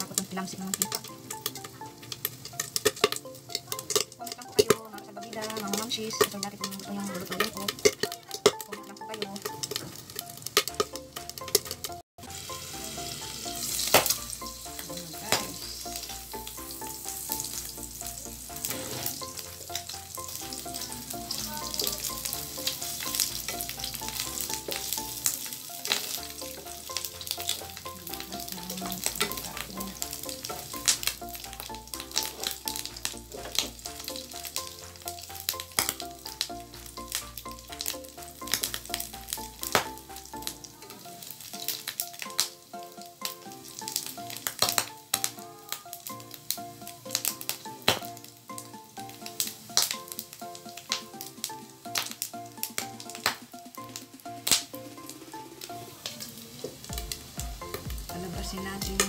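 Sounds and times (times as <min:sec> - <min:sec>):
background music: 0:00.0 - 0:59.0
meat sizzling in a frying pan: 0:00.0 - 0:59.0
spatula scraping a pan: 0:18.5 - 0:19.6.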